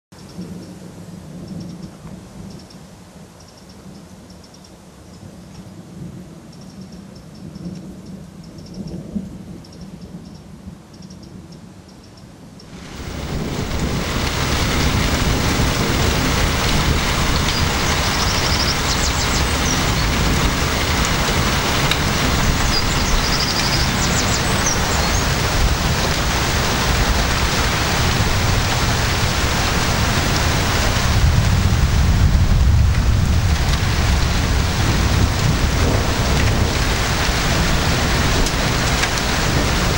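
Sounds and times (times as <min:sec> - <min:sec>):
heavy rain: 0:12.6 - 0:39.9
thunder rumbling: 0:12.7 - 0:39.9.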